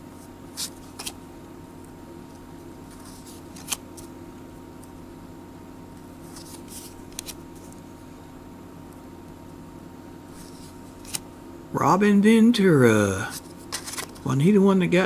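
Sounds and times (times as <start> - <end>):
steady background hum: 0.0 - 15.0
cards being flipped off a stack: 0.5 - 1.2, 2.9 - 4.1, 6.3 - 7.8, 10.4 - 11.2, 13.4 - 14.3.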